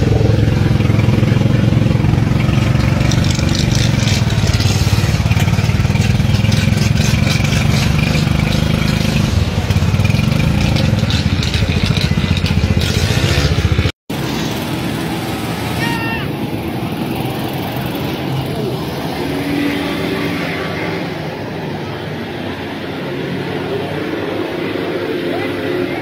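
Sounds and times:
engine running: 0.0s - 19.4s.

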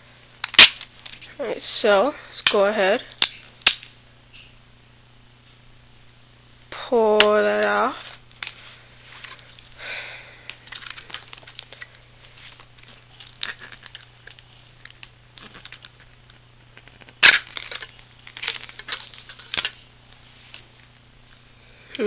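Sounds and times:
thin plastic crinkling: 10.4s - 20.9s.

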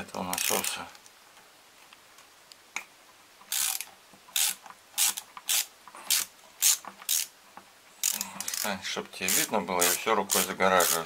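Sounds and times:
screwdriver turning screws: 0.3s - 0.7s, 3.5s - 7.3s, 8.0s - 8.7s, 9.3s - 11.0s.

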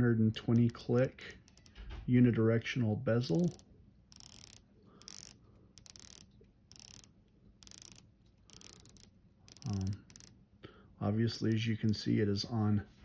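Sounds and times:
watch bezel ratchet clicking: 0.3s - 1.8s, 3.2s - 10.4s, 11.4s - 12.2s.

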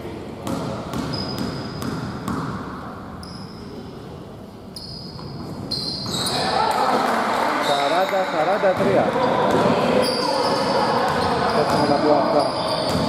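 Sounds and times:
sneakers squeaking on court: 0.4s - 2.6s, 4.7s - 6.6s, 7.6s - 13.0s.

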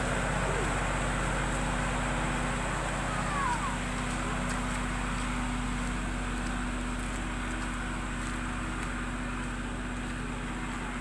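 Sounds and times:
construction machinery engine hum: 0.0s - 11.0s
footsteps scuffing on dirt: 2.8s - 11.0s.

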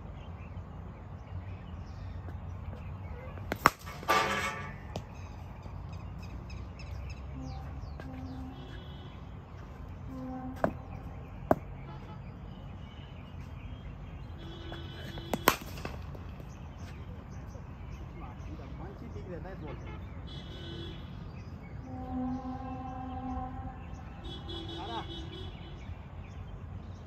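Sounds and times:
cricket bat striking ball: 3.4s - 5.2s, 11.5s - 11.7s, 15.0s - 16.5s.

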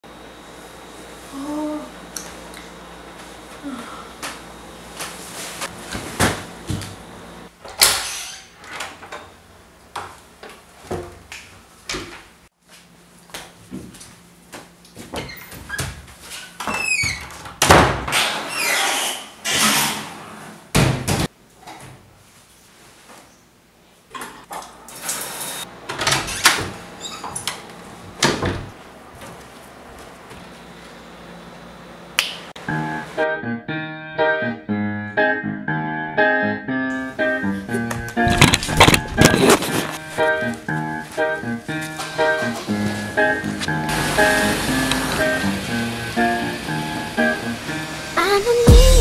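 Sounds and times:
person tumbling off bed: 38.2s - 40.0s.

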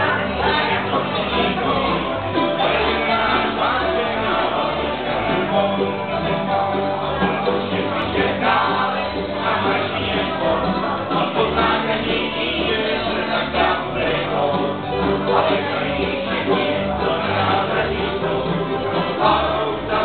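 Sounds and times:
acoustic string band playing: 0.0s - 20.0s
upright bass plucking: 0.0s - 20.0s.

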